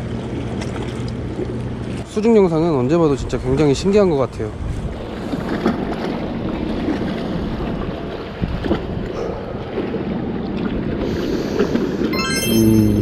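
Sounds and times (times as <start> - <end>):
wind buffeting microphone: 3.0 - 11.0
sea waves: 4.5 - 12.6.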